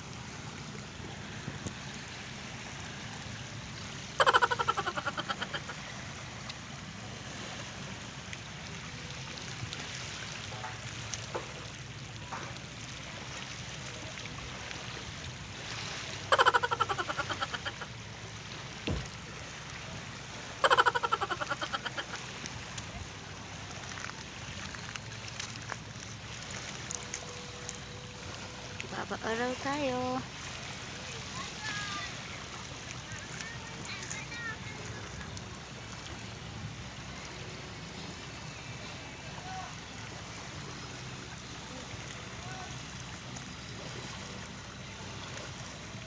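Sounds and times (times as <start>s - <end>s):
small waves lapping on pebbles: 22.1s - 46.0s.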